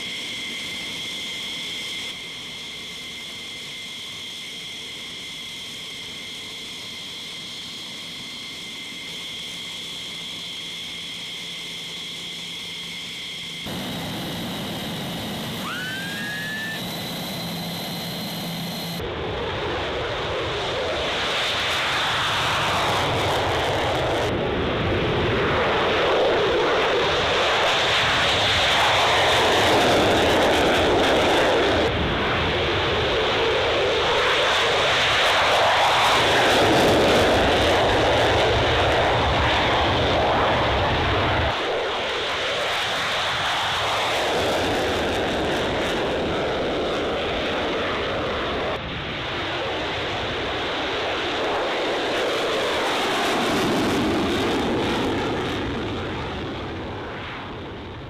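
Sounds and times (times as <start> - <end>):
jet engine whine: 0.0 - 58.0
jet afterburner roar: 13.7 - 58.0.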